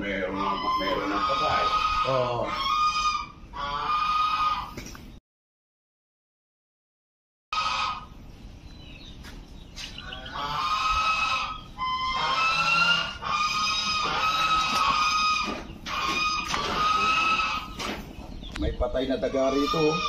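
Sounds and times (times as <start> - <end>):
geese honking: 0.0 - 4.9, 7.5 - 8.2, 9.8 - 20.0.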